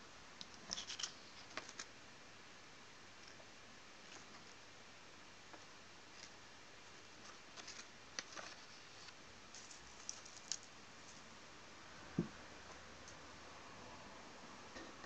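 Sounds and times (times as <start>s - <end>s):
steady low hiss: 0.0s - 15.0s
paper crinkling: 0.5s - 1.9s, 7.2s - 11.3s.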